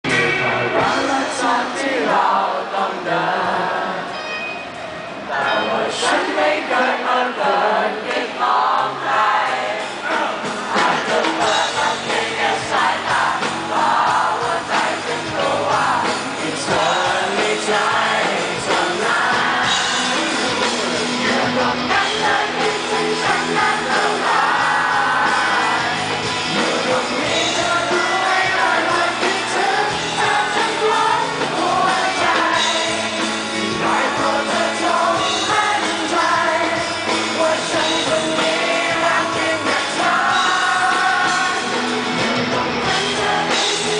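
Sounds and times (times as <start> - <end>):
man singing: 0.0 - 4.1, 13.8 - 43.9
acoustic and electric guitars: 0.0 - 6.6, 9.5 - 43.9
crowd noise: 0.0 - 43.9.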